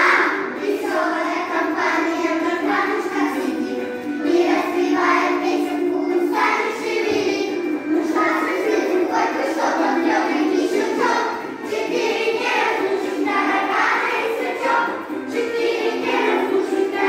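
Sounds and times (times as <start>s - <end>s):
children's choir singing: 0.0s - 17.0s.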